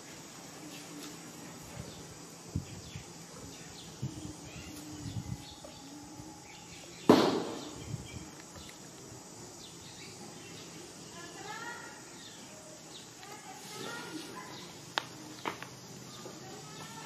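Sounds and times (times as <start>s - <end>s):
insects: 0.0s - 17.0s
loud thump: 7.1s - 7.7s.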